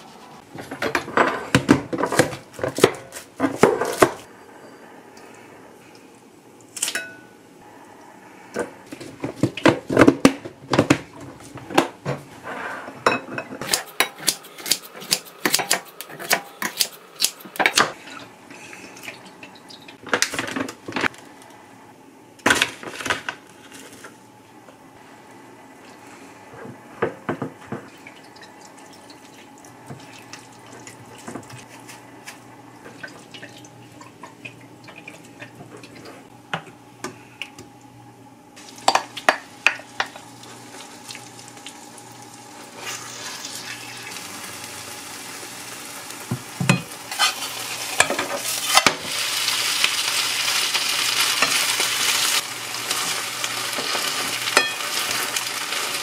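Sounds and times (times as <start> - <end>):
batter sizzling in a frying pan: 38.6 - 56.0.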